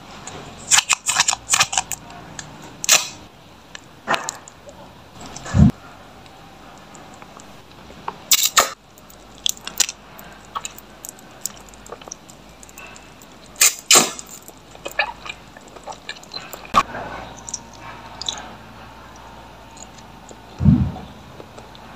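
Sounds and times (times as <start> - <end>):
mouth biting and crunching: 0.7 - 2.1, 6.8 - 20.8
wet chewing clicks: 3.7 - 20.7
lip smacks: 6.8 - 21.9.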